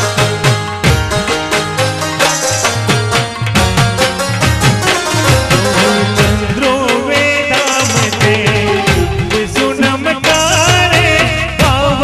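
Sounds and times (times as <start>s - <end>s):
fast drum beat: 0.0s - 12.0s
wavering melody line: 0.8s - 6.8s.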